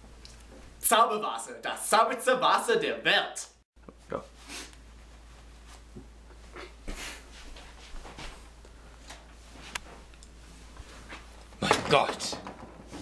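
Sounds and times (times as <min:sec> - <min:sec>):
oven mitts rustling: 0:07.2 - 0:13.0.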